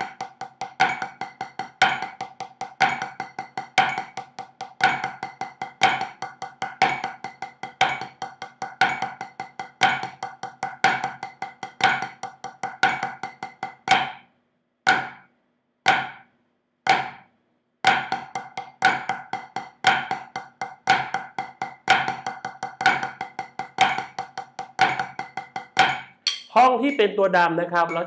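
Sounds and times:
drumsticks on practice pad: 18.0 - 26.7.

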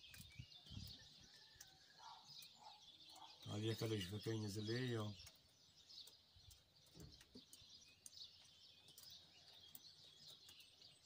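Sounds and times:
faint birds chirping: 0.0 - 11.0.

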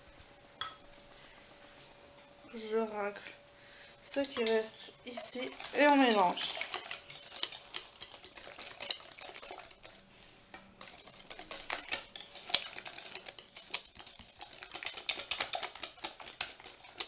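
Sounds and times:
utensil stirring batter in bowl: 4.0 - 17.0.

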